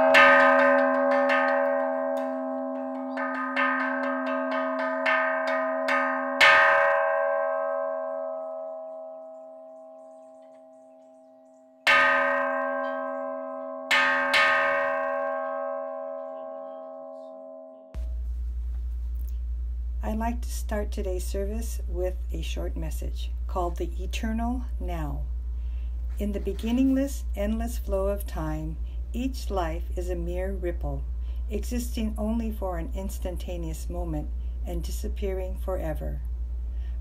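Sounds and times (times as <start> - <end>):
temple bowl bell strikes: 0.0 - 18.2
long humming bell resonance: 0.0 - 18.3.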